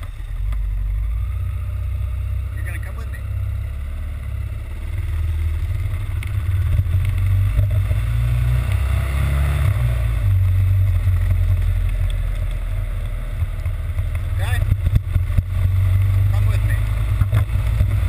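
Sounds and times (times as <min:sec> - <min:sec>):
motorcycle engine running: 0:00.0 - 0:18.0
wind rumble on microphone: 0:06.0 - 0:18.0.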